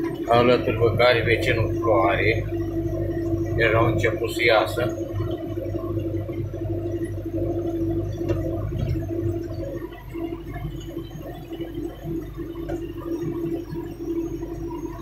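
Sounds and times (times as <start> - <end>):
tractor engine droning: 0.0 - 10.8.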